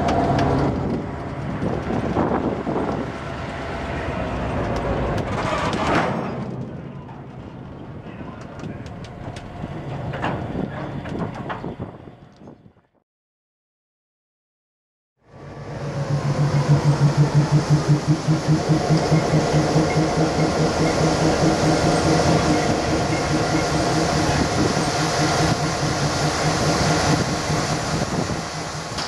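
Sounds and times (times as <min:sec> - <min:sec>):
diesel locomotive engines rumbling: 0:00.0 - 0:13.0, 0:15.2 - 0:29.0
wheels clattering over rail joints: 0:04.4 - 0:12.3.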